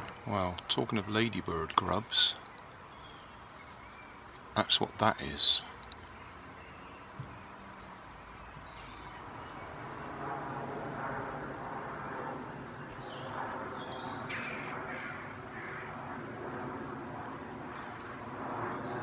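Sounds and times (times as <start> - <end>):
outdoor background: 0.0 - 19.0
crows cawing: 14.3 - 16.1.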